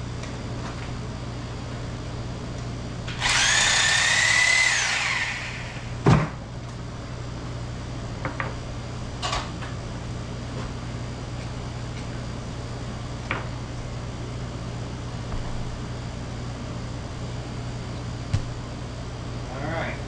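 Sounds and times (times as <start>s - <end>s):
small electric motor whirring: 3.1s - 5.9s.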